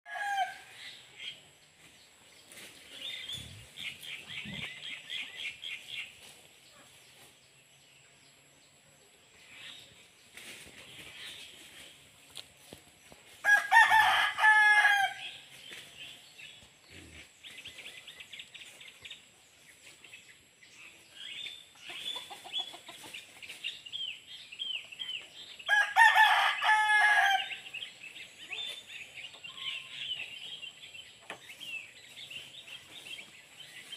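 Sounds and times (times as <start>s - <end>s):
rooster crowing: 0.1s - 0.7s, 13.4s - 15.3s, 25.7s - 27.6s
small birds chirping: 0.7s - 13.4s, 15.2s - 25.7s, 27.4s - 33.9s.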